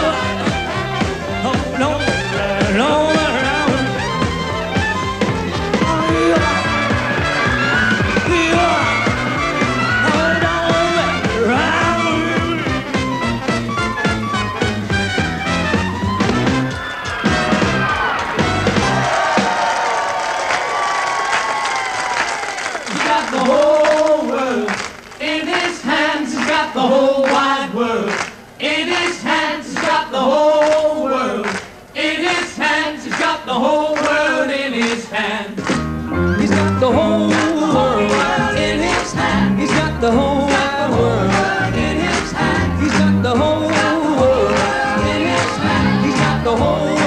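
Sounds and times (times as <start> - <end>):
male vocal group singing in harmony: 0.0 - 0.7, 1.4 - 4.0, 5.8 - 7.1, 7.9 - 12.8, 22.9 - 35.6, 36.4 - 47.0
backing band with bass: 0.0 - 19.6, 35.6 - 47.0.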